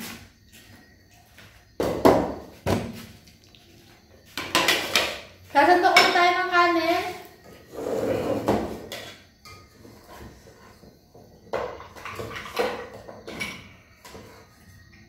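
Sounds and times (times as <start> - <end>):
plates and cutlery clattering: 4.4 - 5.2, 11.4 - 14.3.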